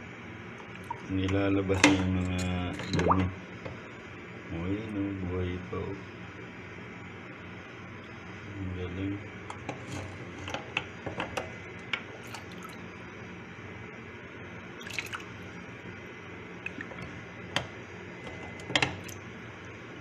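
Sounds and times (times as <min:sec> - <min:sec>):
water dripping: 0:16.6 - 0:17.1.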